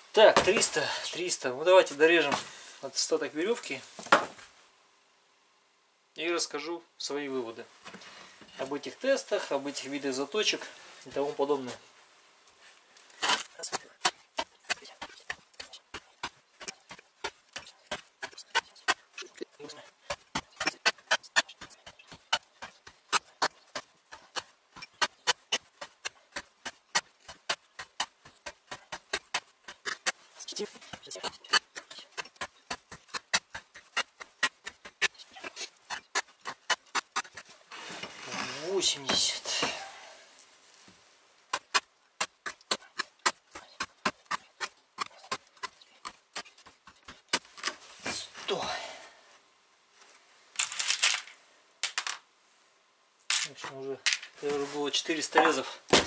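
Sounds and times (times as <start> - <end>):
axe chopping rope on a board: 0.3 - 0.8, 41.5 - 47.5, 55.4 - 56.0
axe cutting rope on wood: 0.3 - 0.8, 13.2 - 39.8, 41.5 - 48.3, 55.3 - 56.0.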